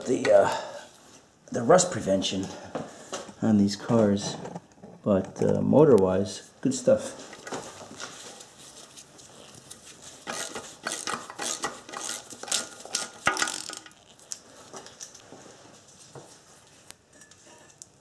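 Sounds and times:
socket ratchet clicking: 10.3 - 14.1.

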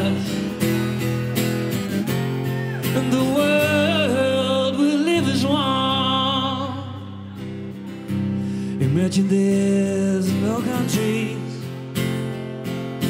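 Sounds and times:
man singing with vibrato: 0.0 - 1.1, 2.8 - 7.8, 8.6 - 11.9
strummed acoustic guitar: 0.0 - 13.0.

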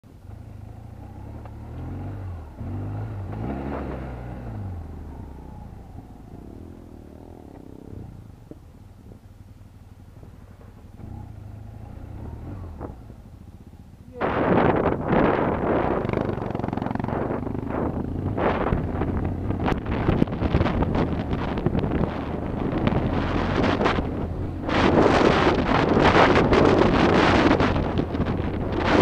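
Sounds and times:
motorcycle engine revving: 0.2 - 29.0
wind noise on microphone: 11.8 - 13.4, 14.1 - 29.0.

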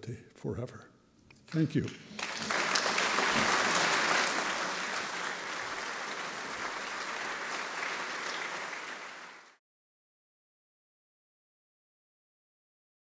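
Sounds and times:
large audience applauding: 1.5 - 9.6.

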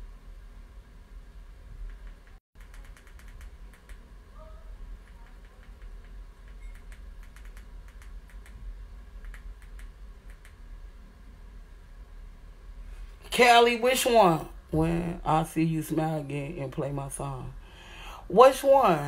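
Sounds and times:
low steady hum: 0.0 - 19.0
keyboard key clicks: 1.9 - 4.0, 5.0 - 8.6, 9.2 - 10.6.

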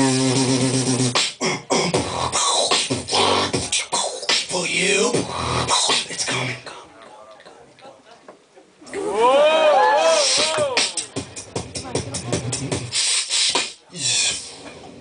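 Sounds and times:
person beatboxing: 0.0 - 7.2, 10.1 - 14.8.

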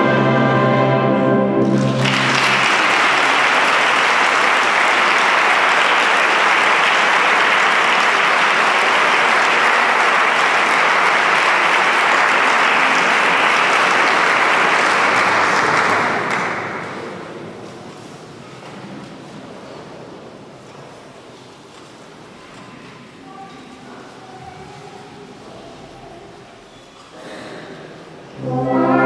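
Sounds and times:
choir and wind band chord: 0.0 - 2.6, 28.4 - 29.0
audience applause: 1.6 - 17.3.

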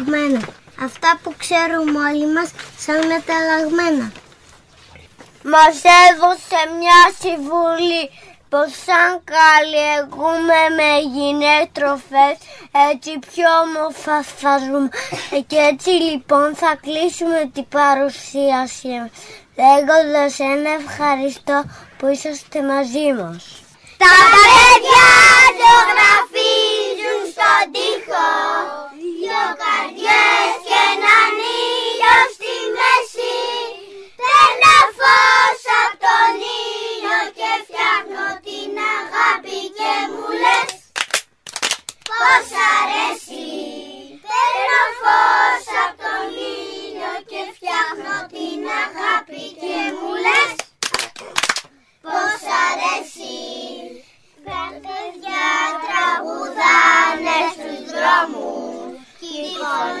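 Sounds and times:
children singing: 24.0 - 40.7, 42.1 - 50.5, 52.1 - 60.0.

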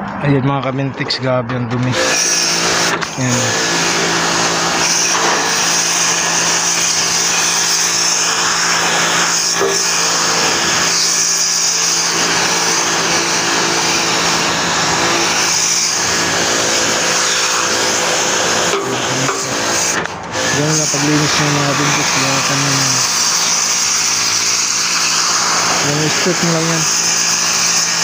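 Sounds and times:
machine humming: 1.0 - 28.0
pressure washer jet hissing: 1.9 - 28.0.

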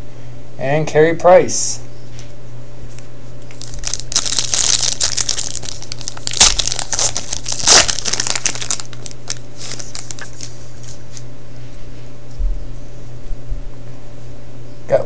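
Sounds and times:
foil wrapper tearing and crinkling: 3.5 - 11.2.

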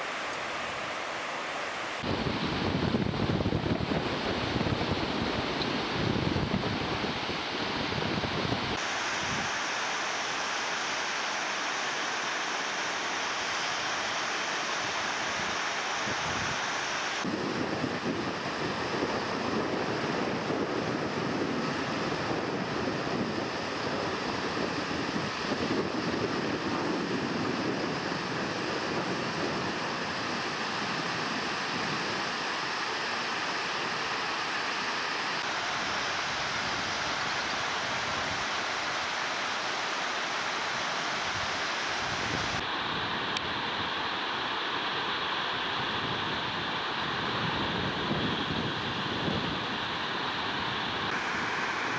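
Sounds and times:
river rapids rushing: 0.0 - 2.4, 8.8 - 17.3, 28.7 - 47.3, 49.7 - 51.9
wind buffeting microphone: 2.0 - 9.5, 17.2 - 32.4, 45.8 - 49.9.

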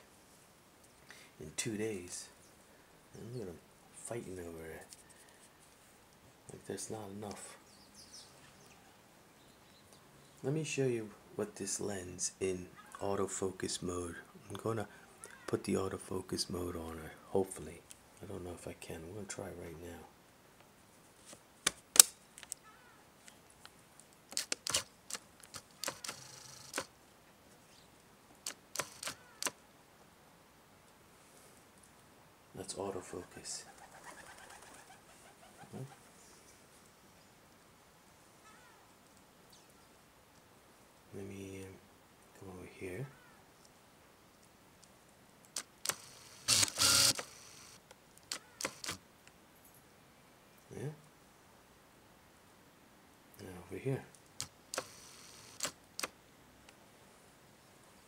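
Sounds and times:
camera mechanical clicks: 24.3 - 26.9, 28.4 - 29.6, 45.5 - 49.0, 54.4 - 56.2
camera focus motor whirring: 25.8 - 26.9, 28.8 - 29.5, 45.6 - 49.0, 54.7 - 56.1.

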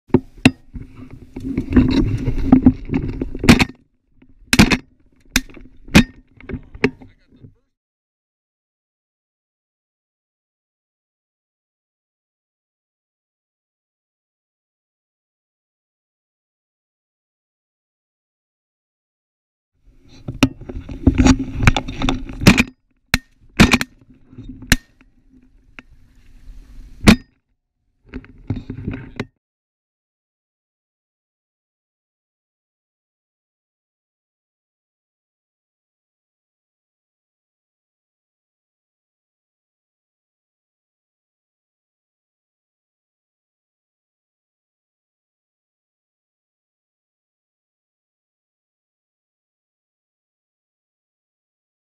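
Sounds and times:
rumbling scraping handling noise: 0.2 - 7.2, 20.0 - 27.2, 28.1 - 29.3.

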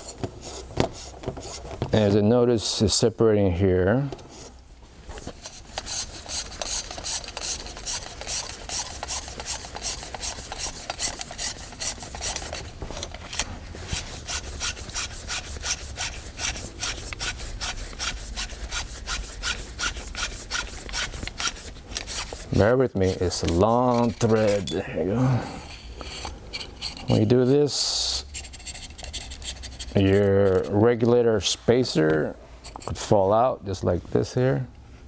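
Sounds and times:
metal-on-metal rasping: 5.4 - 12.7, 13.4 - 24.8, 25.6 - 30.8.

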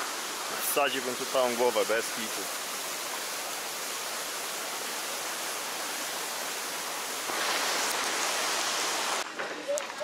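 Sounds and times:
stream rushing over rocks: 0.0 - 10.0.

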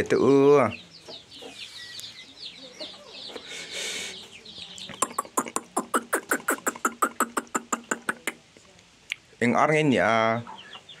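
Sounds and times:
chicks peeping: 0.0 - 8.4, 9.1 - 11.0.

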